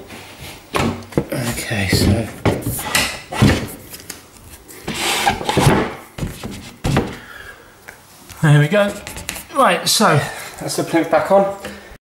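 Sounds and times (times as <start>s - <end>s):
wood scraping: 1.3s - 7.2s, 8.4s - 9.6s.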